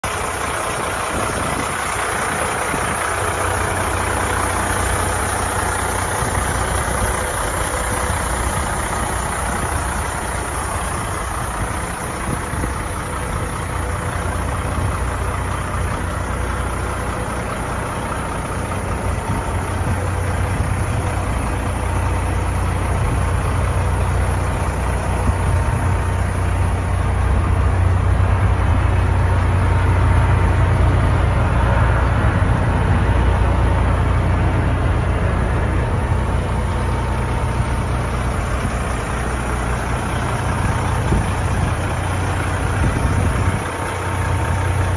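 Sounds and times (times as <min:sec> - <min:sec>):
diesel truck engine idling: 0:00.0 - 0:44.9.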